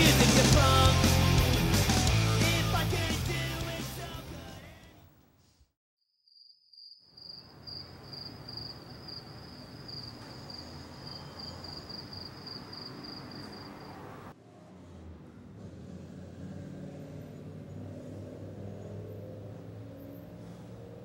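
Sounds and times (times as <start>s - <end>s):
rock music: 0.0s - 4.9s
cricket chirping: 6.3s - 14.2s
low hum of night ambience: 7.2s - 14.3s.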